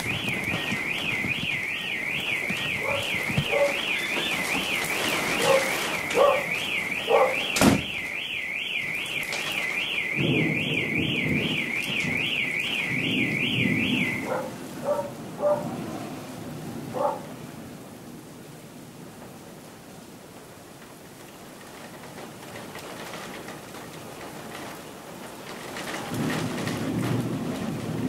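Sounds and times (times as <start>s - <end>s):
sharp crack: 0.0s - 13.0s
car alarm siren warbling: 0.0s - 15.6s.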